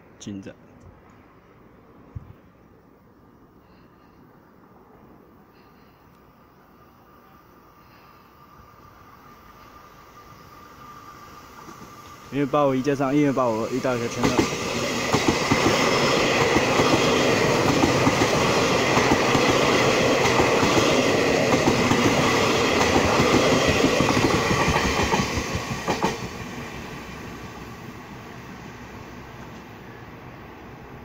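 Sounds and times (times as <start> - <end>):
train wheels clattering over rail joints: 14.1 - 26.5.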